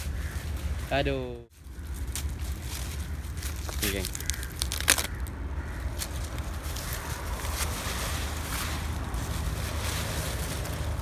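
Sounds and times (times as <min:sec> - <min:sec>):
faint rustles: 0:00.0 - 0:11.0.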